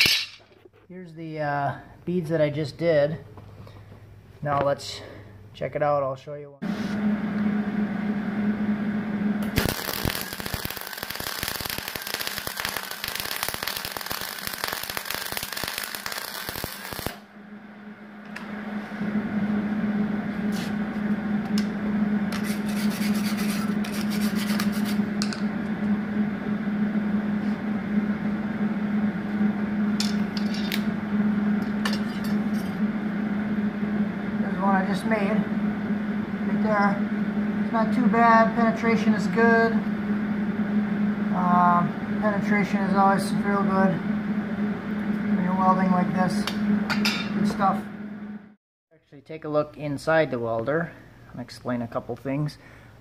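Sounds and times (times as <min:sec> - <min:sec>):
steady hum: 0:00.0 - 0:48.6, 0:49.2 - 0:53.0
welding arc crackling: 0:09.4 - 0:17.3.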